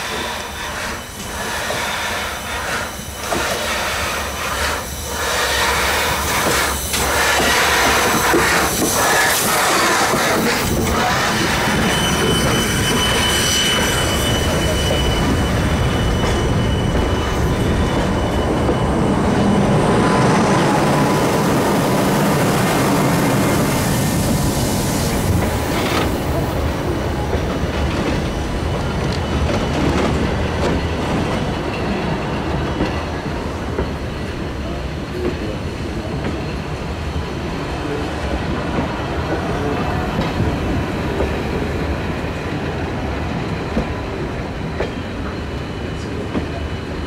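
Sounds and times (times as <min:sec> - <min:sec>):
high wheel squeal: 0:00.0 - 0:26.4
train wheels rumbling on rails: 0:00.0 - 0:47.0.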